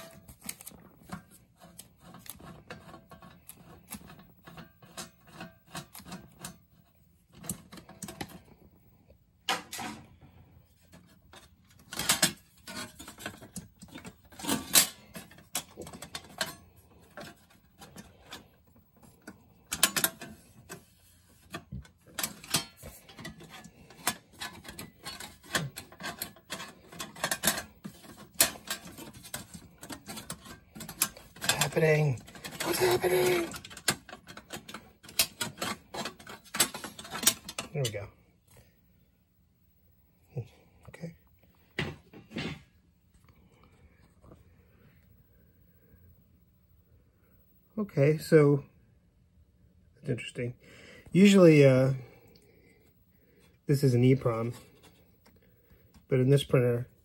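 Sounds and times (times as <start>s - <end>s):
metal cover plate clattering: 21.5s - 37.7s.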